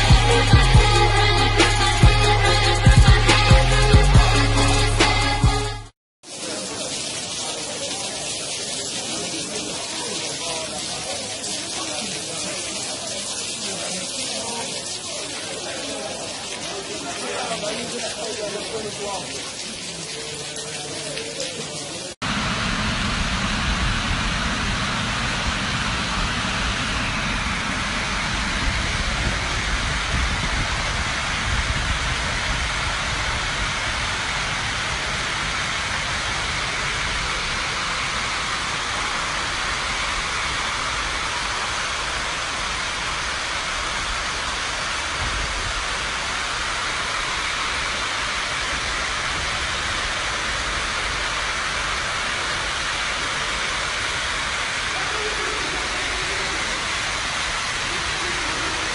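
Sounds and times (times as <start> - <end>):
floodwater rushing: 0.0 - 5.6, 6.2 - 58.9.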